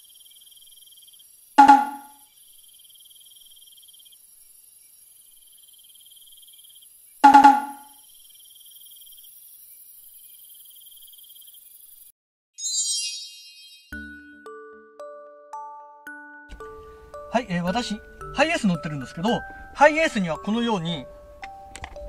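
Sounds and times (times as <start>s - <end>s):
cricket chirping: 0.0s - 12.1s.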